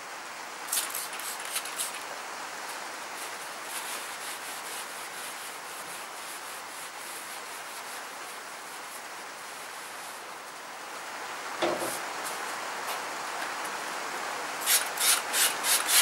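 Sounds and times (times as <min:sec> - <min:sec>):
rain hiss: 0:00.0 - 0:16.0
cloth rubbing strokes: 0:03.2 - 0:10.6.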